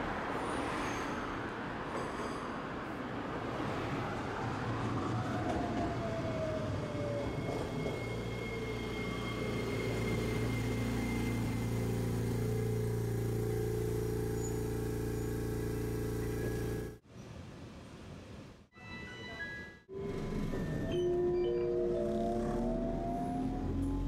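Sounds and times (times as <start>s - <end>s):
streetcar drive whine: 0.0s - 17.0s, 19.9s - 24.0s
steady machine hum: 10.5s - 17.0s.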